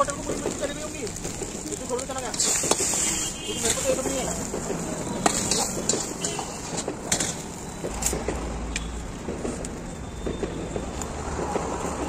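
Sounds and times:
street noise hiss: 0:00.0 - 0:12.0
cooking utensils clinking: 0:02.3 - 0:07.6.

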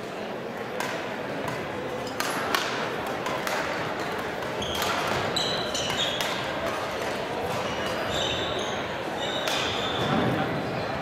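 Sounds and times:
background chatter: 0:00.0 - 0:11.0
rackets hitting shuttlecocks: 0:00.7 - 0:08.1, 0:09.4 - 0:10.3
shoes squeaking on court: 0:04.5 - 0:06.5, 0:07.5 - 0:10.4.

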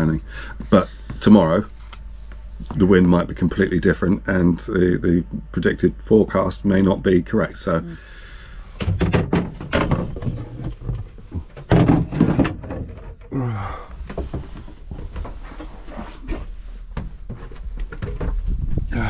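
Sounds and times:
irregular knocks and thumps: 0:08.8 - 0:13.3, 0:14.0 - 0:15.8, 0:16.9 - 0:18.9.

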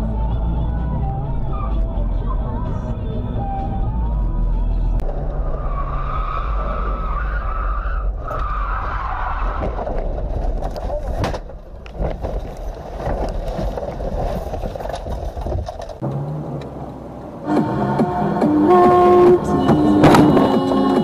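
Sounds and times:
car tyres squealing: 0:05.1 - 0:10.4
car crashing over rough ground: 0:08.2 - 0:16.0.

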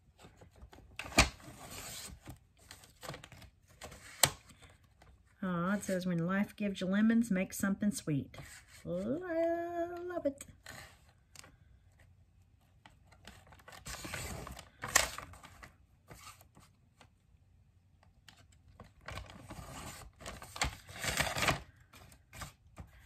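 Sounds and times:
paper rustling and scraping: 0:00.0 - 0:05.1, 0:08.4 - 0:08.9, 0:13.0 - 0:16.8, 0:18.8 - 0:23.0.

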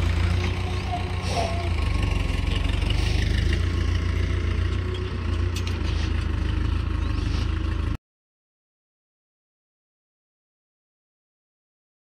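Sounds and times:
tractor diesel engine chugging: 0:00.0 - 0:08.0.

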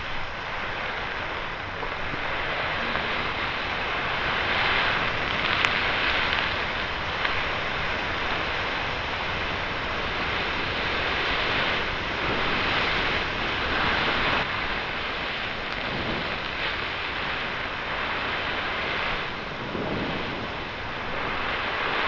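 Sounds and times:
steady rushing noise: 0:00.0 - 0:22.0.

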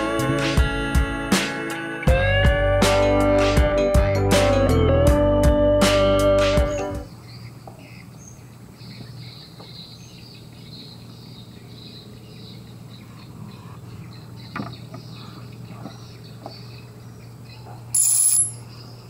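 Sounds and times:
insects and birds chirping: 0:07.1 - 0:19.0.

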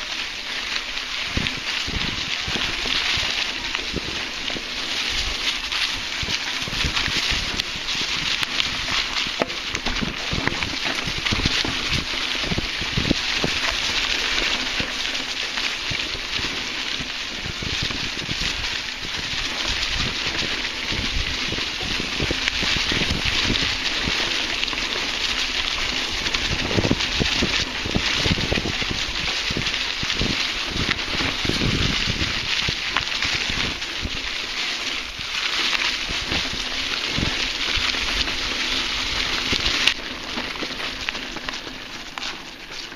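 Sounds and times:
bike tyres crackling over leaves: 0:00.0 - 0:42.9.

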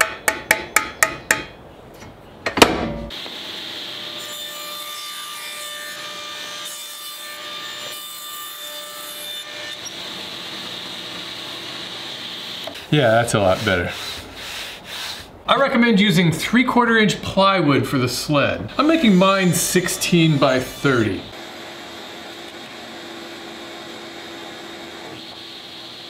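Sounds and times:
loud knock: 0:02.5 - 0:03.1.

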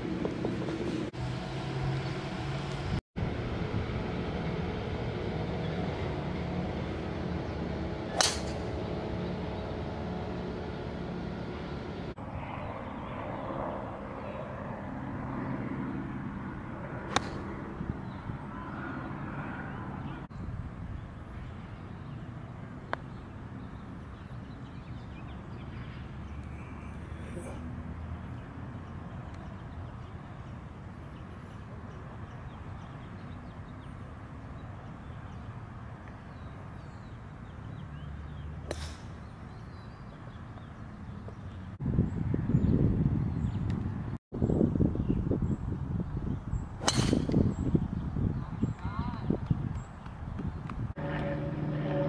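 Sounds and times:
outdoor hum: 0:00.0 - 0:44.6, 0:45.4 - 0:52.0
golf club striking ball: 0:08.1 - 0:08.8, 0:17.1 - 0:17.4, 0:38.6 - 0:39.1, 0:46.8 - 0:47.6.

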